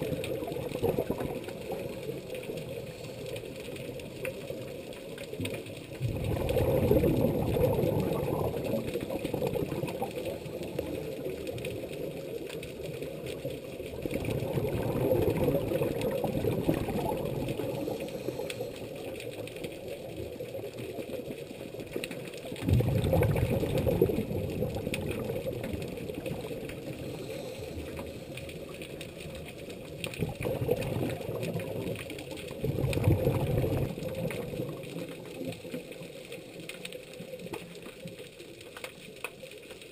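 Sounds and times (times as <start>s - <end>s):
underwater exhalation bubbling: 0.0s - 3.0s, 5.9s - 11.6s, 13.9s - 19.4s, 22.4s - 36.1s.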